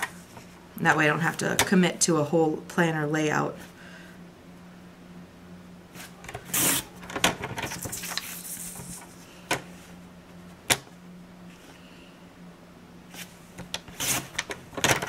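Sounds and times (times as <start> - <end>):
paper rustling and sliding: 7.6 - 9.9.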